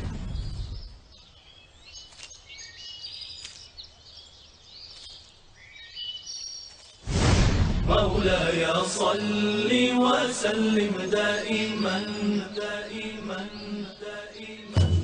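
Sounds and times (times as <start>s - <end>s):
birds chirping and whistling: 0.0s - 6.8s, 10.8s - 15.0s
rushing whoosh: 7.1s - 8.1s.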